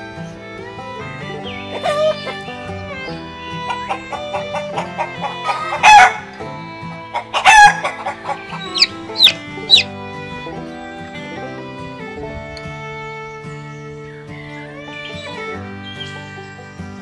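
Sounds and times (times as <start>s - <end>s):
background music: 0.0s - 17.0s
chicken calls: 1.4s - 2.5s, 3.6s - 9.9s
chick peeps falling in pitch: 7.3s - 9.9s.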